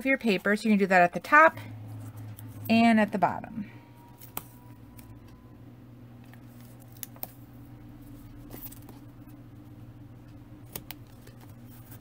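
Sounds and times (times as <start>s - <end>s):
hands handling tape: 6.2s - 7.4s.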